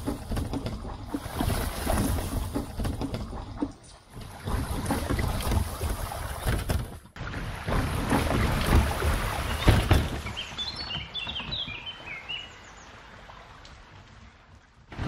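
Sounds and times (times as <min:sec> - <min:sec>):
bicycle wheels splashing through stream: 0:07.2 - 0:12.5
songbird chirping: 0:09.2 - 0:14.6.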